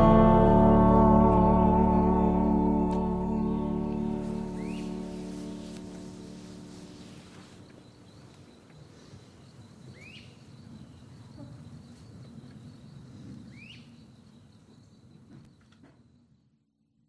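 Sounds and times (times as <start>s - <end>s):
low rumble: 0.0s - 7.3s
bird rising calls: 3.3s - 8.2s.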